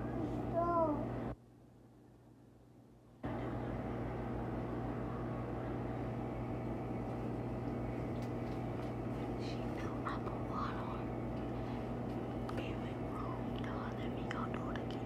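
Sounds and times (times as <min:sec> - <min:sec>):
mechanical hum with hiss: 0:00.0 - 0:15.0.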